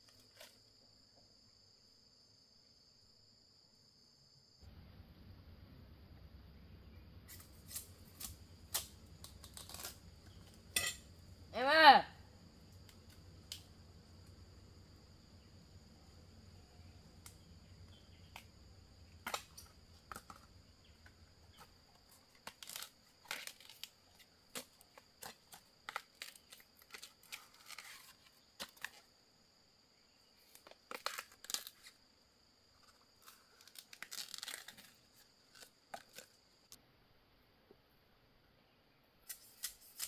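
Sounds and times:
tearing and rustling: 7.3s - 10.1s, 21.6s - 29.1s, 30.4s - 32.0s, 32.8s - 36.4s, 39.3s - 40.0s.

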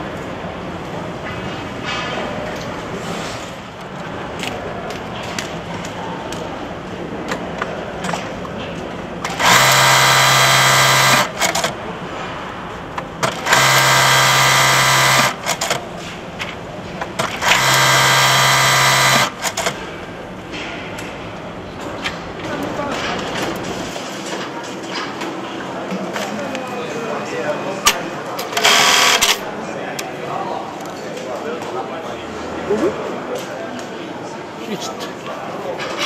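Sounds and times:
sewing machine humming: 9.2s - 11.8s, 13.2s - 16.0s, 17.2s - 19.9s, 28.6s - 29.4s.

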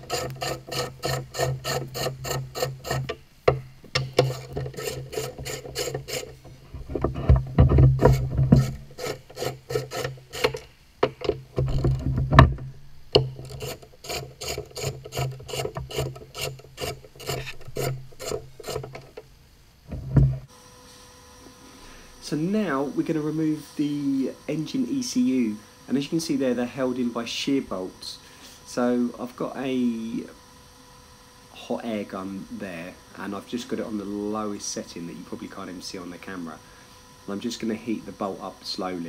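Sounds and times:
tool and metal clattering: 0.0s - 19.2s.

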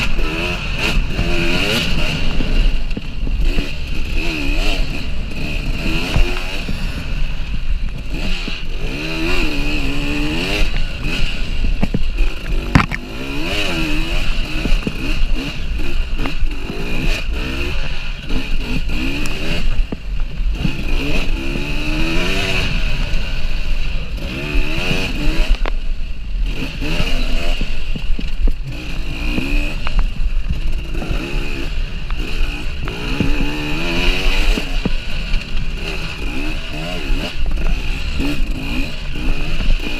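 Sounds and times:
motorcycle engine revving: 0.0s - 39.9s
bike knocks and clatter: 11.7s - 13.1s.

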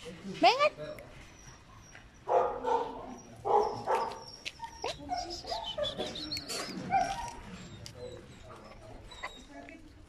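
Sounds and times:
dogs barking: 1.4s - 6.2s, 6.8s - 9.4s
dogs whining and yipping: 3.0s - 9.9s.

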